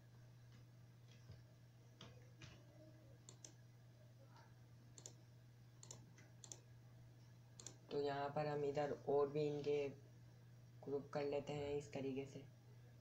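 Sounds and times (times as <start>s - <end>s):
low electrical hum: 0.0s - 13.0s
computer mouse clicking: 3.3s - 3.6s, 5.0s - 5.2s, 5.8s - 6.6s, 7.6s - 7.8s.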